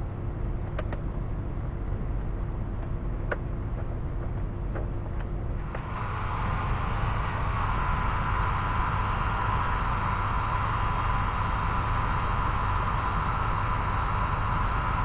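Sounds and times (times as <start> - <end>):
heat gun blowing hot air: 5.7 - 15.0.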